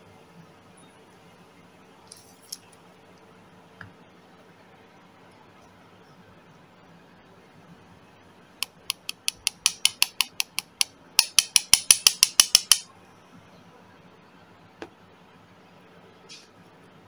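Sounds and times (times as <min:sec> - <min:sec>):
hammer tapping lead sinker: 0:08.6 - 0:12.9.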